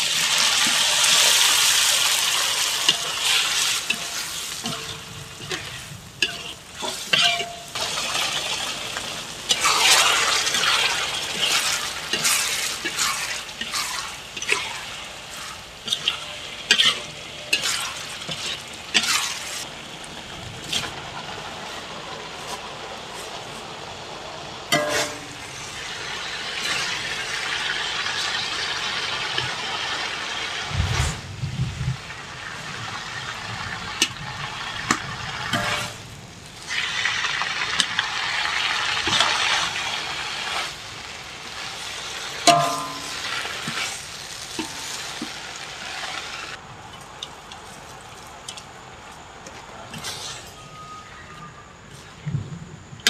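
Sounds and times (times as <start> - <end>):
leaves sizzling in a wok: 0.0 - 53.0
metal spatula scraping wok: 0.1 - 8.9, 9.5 - 19.7, 24.7 - 31.2, 35.4 - 36.0, 49.9 - 52.2.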